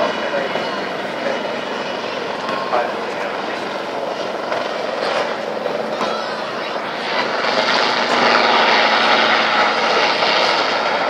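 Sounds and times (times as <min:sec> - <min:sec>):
helicopter flying overhead: 0:00.0 - 0:11.0.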